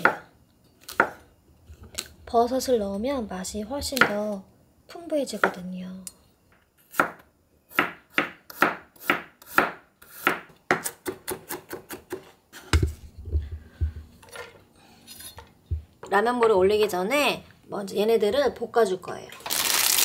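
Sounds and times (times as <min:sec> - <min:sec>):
knife chopping on wooden board: 0:06.9 - 0:13.0.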